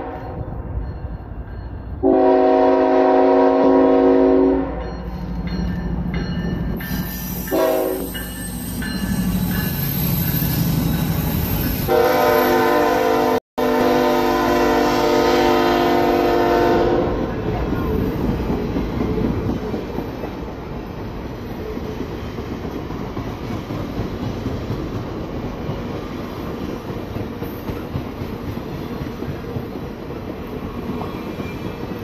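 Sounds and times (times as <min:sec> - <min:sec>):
locomotive air horn: 0:00.0 - 0:00.4, 0:02.0 - 0:04.8, 0:07.3 - 0:08.1, 0:11.9 - 0:17.3
train wheel noise: 0:14.3 - 0:32.0.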